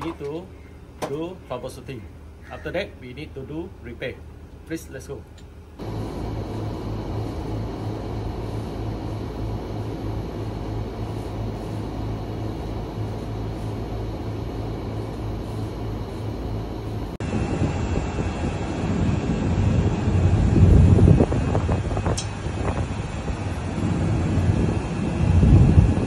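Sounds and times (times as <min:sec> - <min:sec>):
air conditioning units humming: 0:00.0 - 0:26.0
low rumble: 0:05.8 - 0:26.0.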